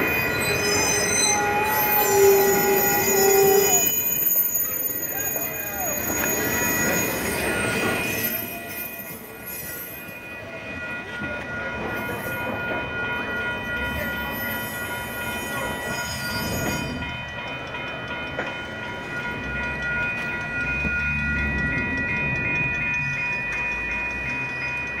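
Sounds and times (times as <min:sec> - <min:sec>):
train wheels squealing: 0:00.0 - 0:10.6, 0:13.8 - 0:17.7, 0:19.6 - 0:25.0
low train rumble: 0:00.0 - 0:25.0.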